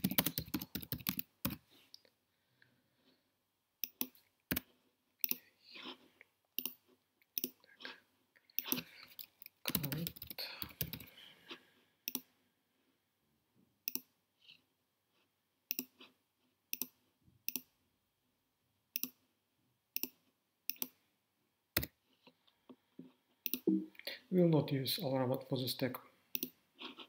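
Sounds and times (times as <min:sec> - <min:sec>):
keyboard typing: 0:00.0 - 0:01.6, 0:03.8 - 0:05.5, 0:06.6 - 0:07.6, 0:08.6 - 0:11.1, 0:23.4 - 0:23.8
computer mouse clicks: 0:03.8 - 0:04.6, 0:06.6 - 0:07.6, 0:12.1 - 0:12.3, 0:13.9 - 0:14.1, 0:15.7 - 0:16.0, 0:16.7 - 0:17.7, 0:19.0 - 0:19.2, 0:20.0 - 0:21.0, 0:23.4 - 0:23.7, 0:26.3 - 0:26.6.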